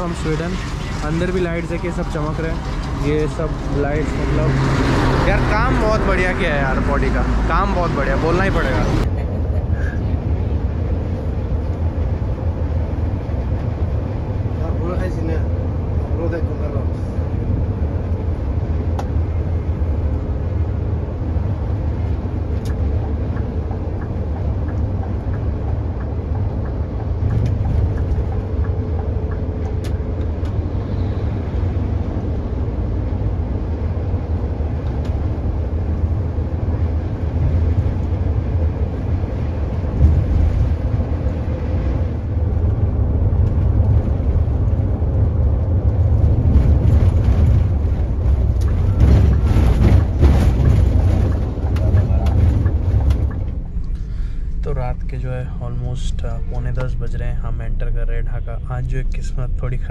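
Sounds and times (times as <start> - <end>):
coach engine and road noise: 0.0 - 59.9.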